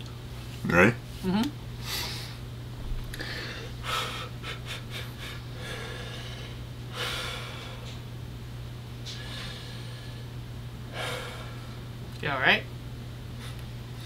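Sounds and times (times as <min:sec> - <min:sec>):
steady low hum: 0:00.0 - 0:14.0
man breathing hard: 0:03.1 - 0:08.0, 0:09.0 - 0:11.8.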